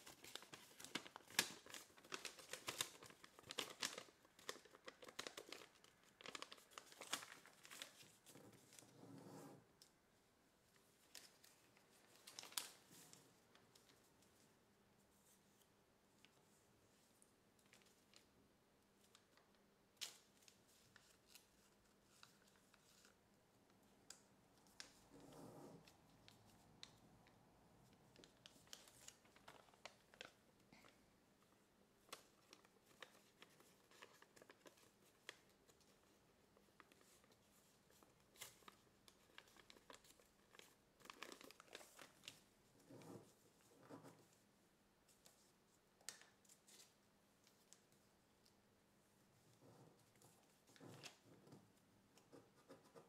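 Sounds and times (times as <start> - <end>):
paper crinkling and clicking: 0.0 - 9.0, 11.0 - 14.0, 19.0 - 23.2, 28.1 - 44.4, 45.1 - 48.6.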